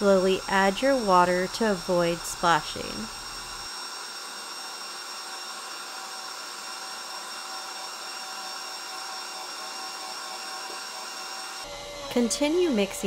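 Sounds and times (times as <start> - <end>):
stand mixer motor whirring: 0.0 - 13.0.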